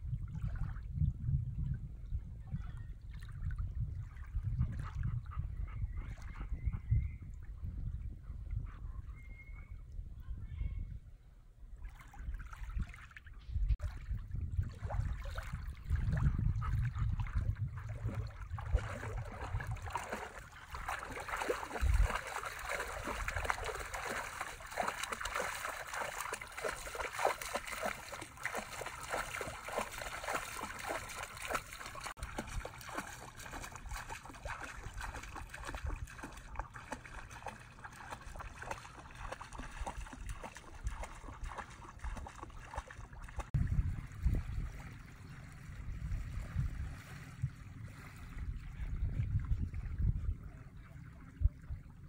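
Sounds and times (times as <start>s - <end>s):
dog splashing through water: 14.8s - 47.4s.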